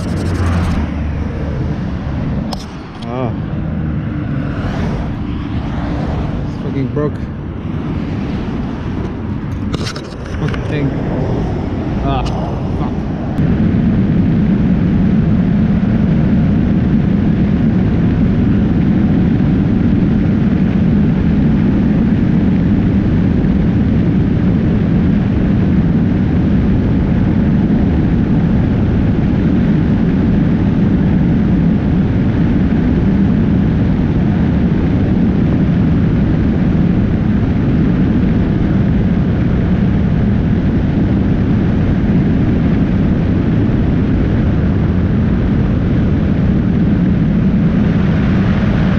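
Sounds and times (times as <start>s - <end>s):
wind and road noise: 0.0s - 48.9s.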